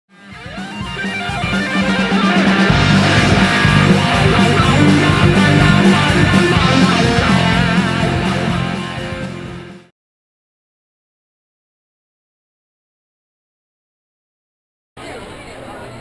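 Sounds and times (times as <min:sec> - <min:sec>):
electric guitar rock music: 0:00.1 - 0:09.9.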